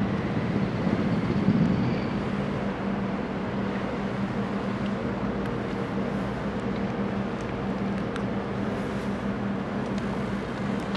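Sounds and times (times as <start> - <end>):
boat diesel engine humming: 0.0 - 10.9
constant rushing background: 0.0 - 10.9.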